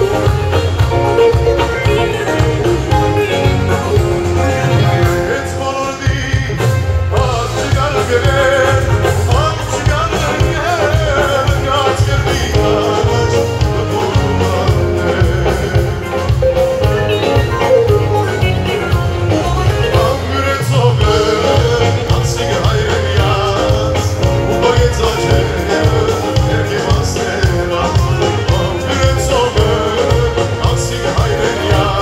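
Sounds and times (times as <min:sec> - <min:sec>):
live band playing: 0:00.0 - 0:32.0
man singing into microphone: 0:04.4 - 0:17.2, 0:18.9 - 0:32.0.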